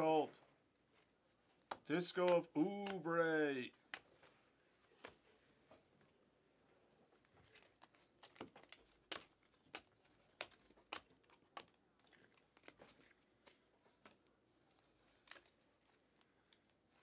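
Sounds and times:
trading cards snapping: 0:01.6 - 0:03.2.

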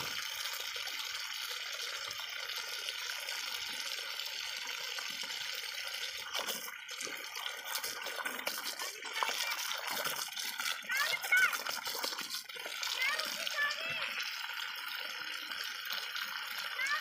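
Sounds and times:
water jet hissing from pipe: 0:00.0 - 0:17.0
dog biting and lapping water: 0:06.3 - 0:14.0.

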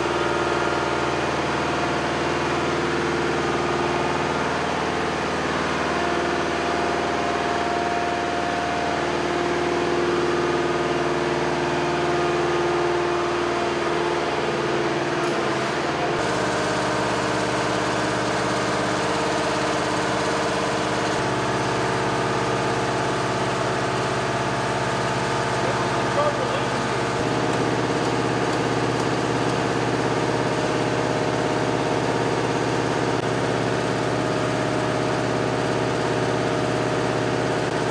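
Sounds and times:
truck engine idling: 0:16.0 - 0:37.9.

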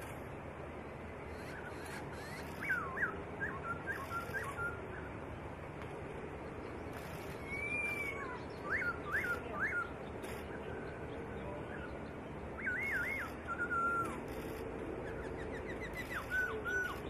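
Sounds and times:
bird singing whistled phrases: 0:01.5 - 0:05.0, 0:07.4 - 0:10.8, 0:12.6 - 0:14.2, 0:15.0 - 0:17.0.

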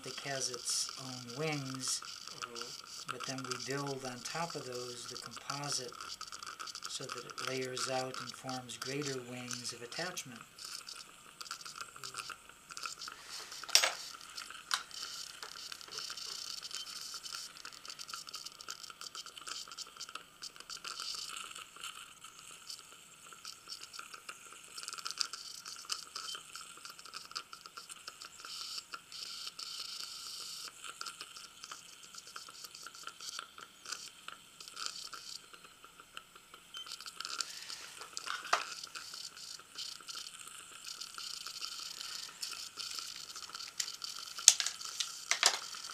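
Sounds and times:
dental instruments on teeth: 0:00.0 - 0:45.9
saliva ejector sucking: 0:10.6 - 0:20.0, 0:36.8 - 0:45.9.

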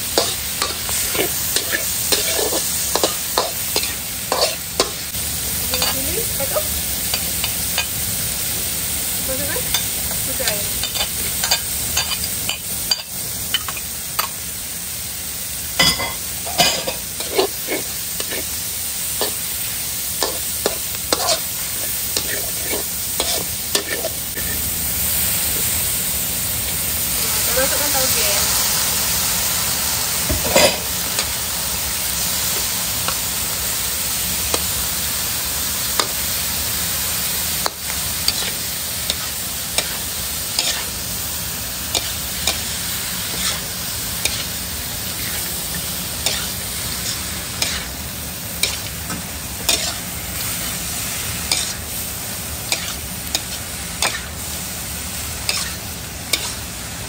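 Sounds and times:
food sizzling in hot oil: 0:00.0 - 0:57.0
metal spatula scraping a wok: 0:00.2 - 0:05.1, 0:15.8 - 0:18.6, 0:20.2 - 0:24.6, 0:37.6 - 0:41.1, 0:41.9 - 0:48.0, 0:48.6 - 0:49.0, 0:49.6 - 0:52.1, 0:52.7 - 0:54.5, 0:55.4 - 0:56.7.

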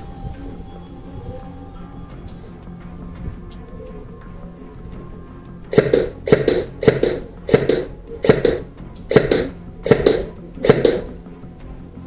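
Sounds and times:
muffled airsoft rifle shots: 0:05.7 - 0:11.2.

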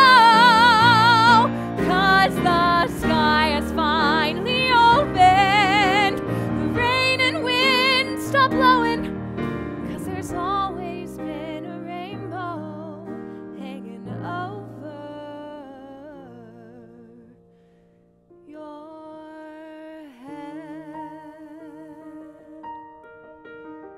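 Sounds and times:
woman singing with vibrato: 0:00.0 - 0:09.1, 0:09.9 - 0:17.4, 0:18.5 - 0:22.6
instrumental accompaniment: 0:00.0 - 0:12.2.

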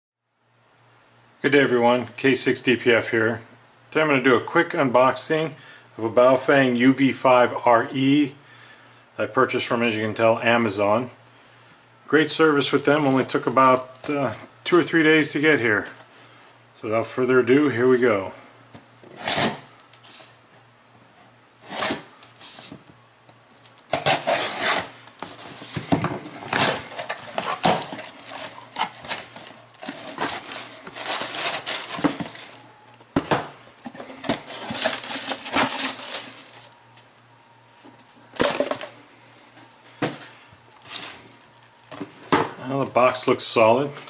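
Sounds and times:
knife cutting packing tape: 0:19.1 - 0:19.6, 0:21.6 - 0:22.1, 0:23.8 - 0:24.9
packing paper rustling: 0:23.5 - 0:36.8, 0:37.9 - 0:38.9, 0:40.0 - 0:42.2
box set down on table: 0:40.0 - 0:40.3.

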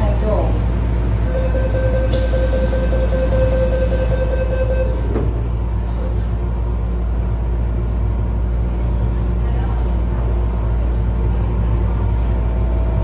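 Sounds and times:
door closing warning tone: 0:01.4 - 0:05.3
train doors thudding shut: 0:04.9 - 0:05.5.

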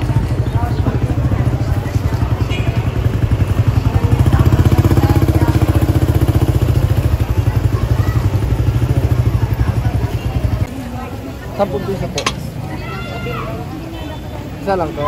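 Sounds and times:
small motorcycle engine puttering: 0:00.0 - 0:10.7.

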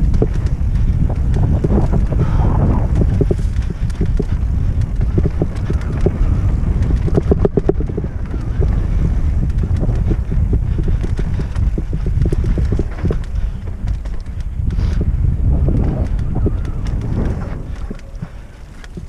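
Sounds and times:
bike rattling over bumps: 0:00.0 - 0:19.0
low rumble of bike tyres: 0:00.0 - 0:19.0
wind buffeting microphone: 0:00.0 - 0:19.0.

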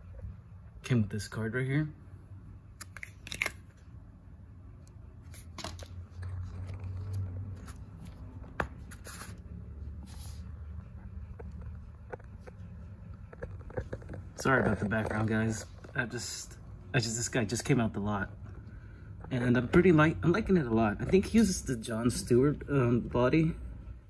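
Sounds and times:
plastic figure and card rustling: 0:02.8 - 0:03.9, 0:05.2 - 0:09.4, 0:11.4 - 0:16.2.

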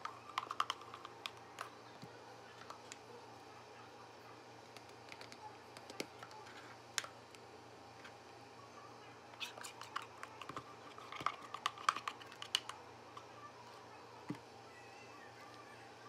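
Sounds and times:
spoon scraping and clicking on containers: 0:00.0 - 0:01.7, 0:09.4 - 0:13.3.

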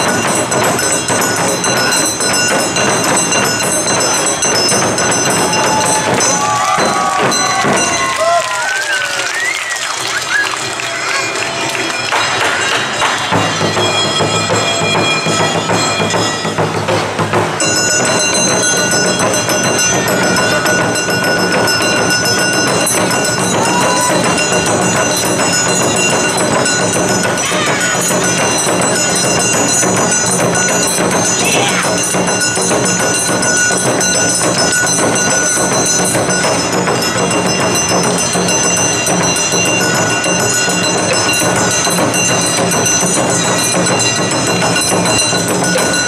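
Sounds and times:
steady high ringing: 0:00.0 - 0:08.4, 0:10.9 - 0:46.0
taiko drums fast rhythm: 0:00.0 - 0:46.0
performers shouting calls: 0:05.1 - 0:12.1, 0:19.8 - 0:30.5.

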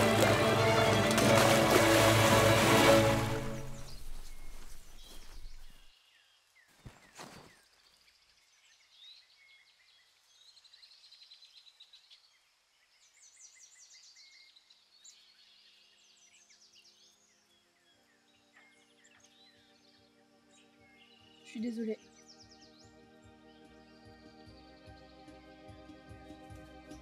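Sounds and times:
soft music: 0:00.0 - 0:05.8, 0:17.5 - 0:27.0
birds chirping and singing: 0:00.0 - 0:05.9, 0:13.2 - 0:25.4.

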